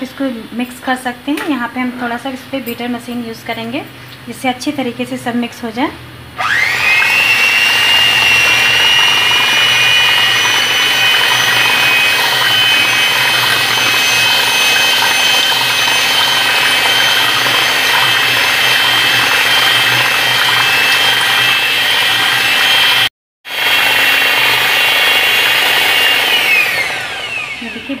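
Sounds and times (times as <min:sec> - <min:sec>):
electric hand mixer whining: 0:06.4 - 0:28.0.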